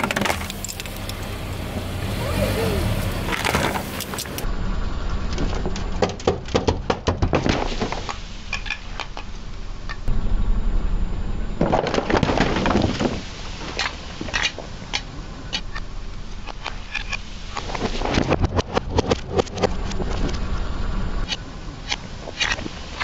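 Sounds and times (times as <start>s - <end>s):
tyre crushing aluminium cans: 0.0s - 1.2s.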